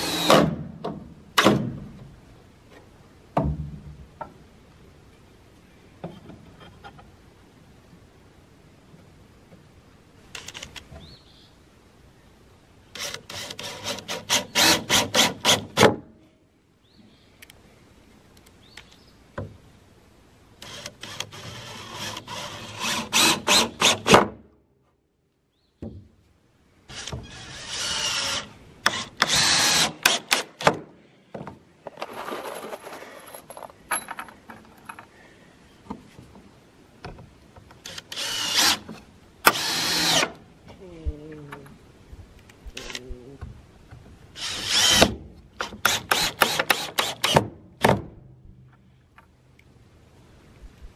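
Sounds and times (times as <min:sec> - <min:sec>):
cordless drill drilling into wood: 0:13.0 - 0:15.6, 0:26.9 - 0:30.5, 0:37.9 - 0:38.8, 0:39.5 - 0:40.4, 0:44.4 - 0:47.4.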